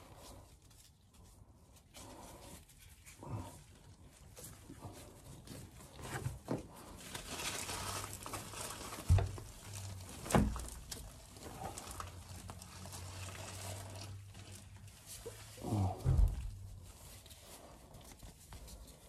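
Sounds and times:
wrap rustling and scraping on pipe: 0.0 - 19.0.

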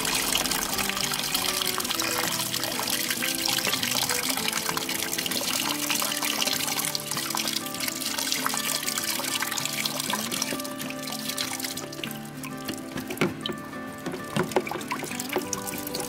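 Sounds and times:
background music: 0.0 - 16.0
water splashing into plastic bucket: 0.0 - 16.0.

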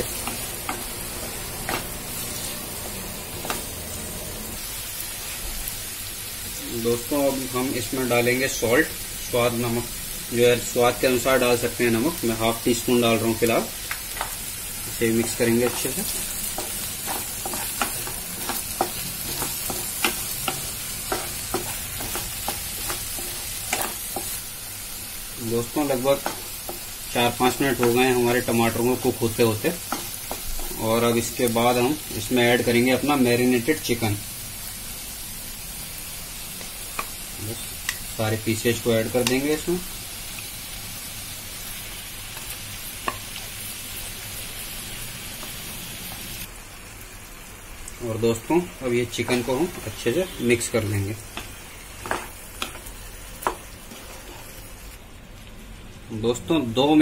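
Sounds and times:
vegetables sizzling in oil: 0.0 - 57.0
spatula scraping a pan: 15.1 - 24.4, 51.3 - 54.6.

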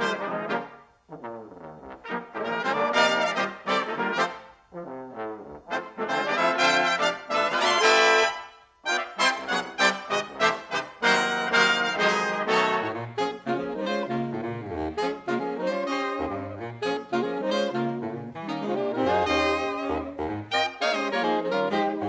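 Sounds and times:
big band jazz from cassette: 8.9 - 22.0.

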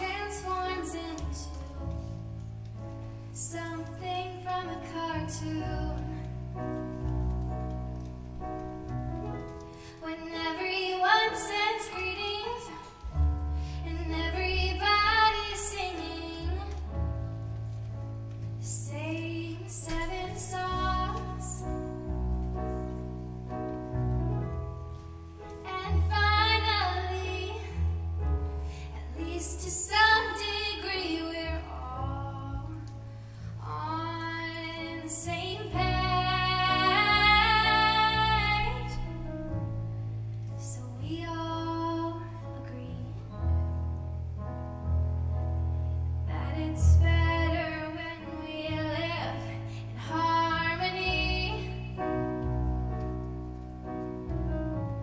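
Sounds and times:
woman singing: 0.0 - 1.9, 3.4 - 6.3, 10.0 - 13.0, 13.8 - 16.8, 18.6 - 22.0, 25.6 - 27.8, 28.9 - 32.9, 33.6 - 39.2, 40.6 - 43.4, 46.3 - 52.0
keyboard chords: 4.1 - 55.0.

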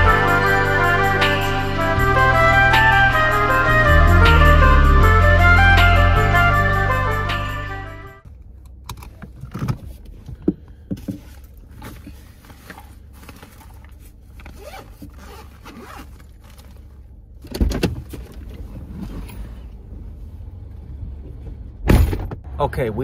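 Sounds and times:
car cabin rumble: 8.2 - 23.0
handling clicks and scrapes: 8.5 - 19.8
backpack fabric rustle: 11.2 - 17.0.

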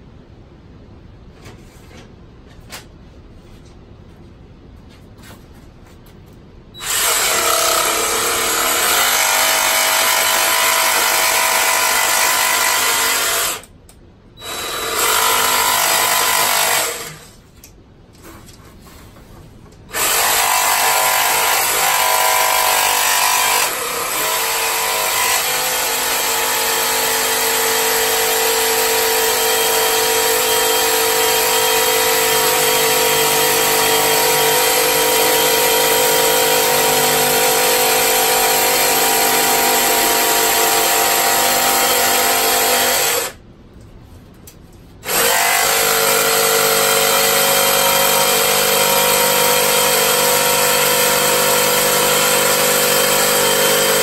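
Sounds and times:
jigsaw cutting plastic pipe: 6.8 - 13.7, 14.4 - 17.4, 19.9 - 43.4, 45.0 - 54.0.

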